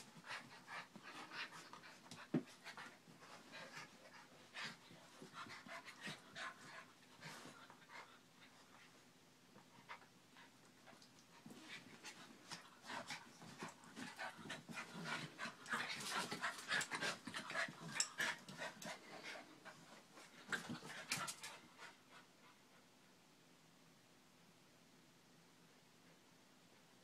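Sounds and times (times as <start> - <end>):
dogs panting: 11.5 - 22.3.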